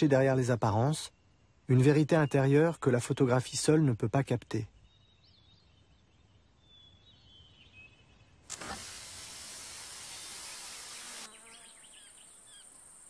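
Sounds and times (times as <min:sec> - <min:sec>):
steady hiss: 0:08.4 - 0:13.0.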